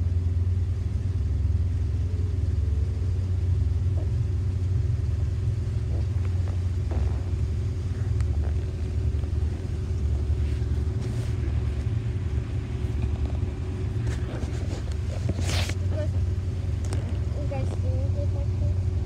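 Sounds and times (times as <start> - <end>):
boat engine rumbling: 0.0 - 19.0.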